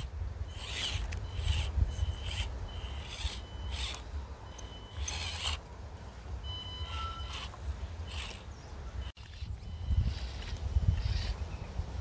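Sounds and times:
small electric motor rasping: 0.0s - 4.2s, 4.9s - 5.7s, 6.8s - 8.5s, 9.2s - 11.5s.

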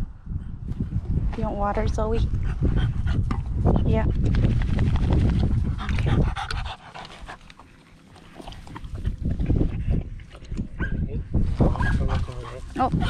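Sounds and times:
low rumble on microphone: 0.0s - 7.4s, 8.4s - 13.0s
dog panting hard: 2.1s - 3.9s, 5.4s - 7.9s.

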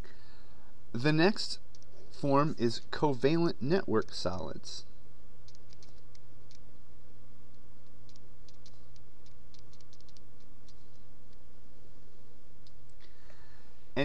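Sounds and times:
steady low hum: 0.0s - 14.0s
stylus tapping on tablet: 7.5s - 11.4s.

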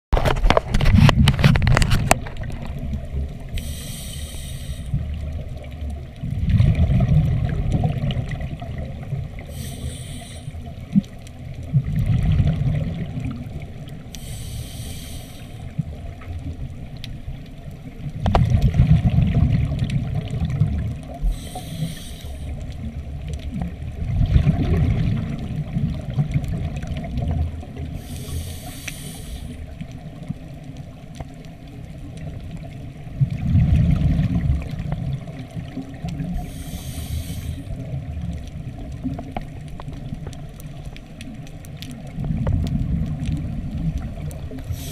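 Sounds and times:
regulator inhale hiss: 3.5s - 5.1s, 9.4s - 10.8s, 14.1s - 15.8s, 21.2s - 22.7s, 27.9s - 29.8s, 36.3s - 37.9s, 44.6s - 44.9s
exhaled bubbles rushing: 5.0s - 10.1s, 11.7s - 13.8s, 18.3s - 21.5s, 22.9s - 28.0s, 33.2s - 40.2s.

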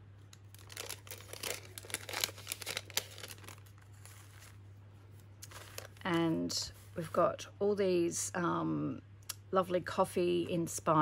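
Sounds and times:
paper wrapping rustling and crinkling: 0.5s - 7.0s.

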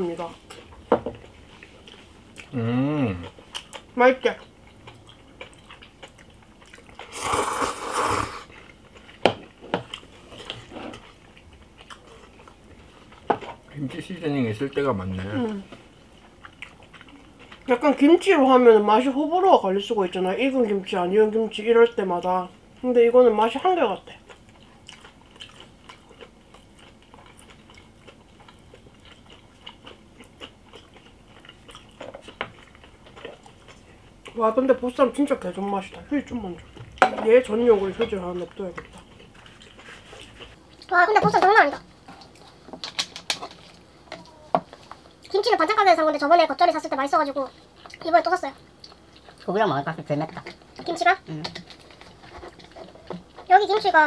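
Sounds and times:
chewing and biting food: 0.4s - 7.8s, 8.5s - 13.6s, 16.1s - 17.8s, 24.2s - 34.4s
person slurping noodles: 7.1s - 8.5s.

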